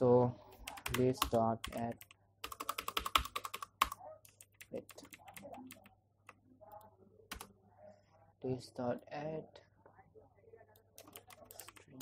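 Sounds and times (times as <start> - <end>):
typing on computer keyboard: 0.7 - 5.9, 11.0 - 12.0.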